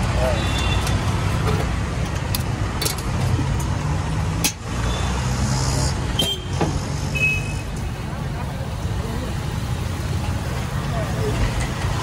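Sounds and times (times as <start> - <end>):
sharp clicks and knocks: 0.0 - 4.7
street traffic noise: 0.0 - 12.0.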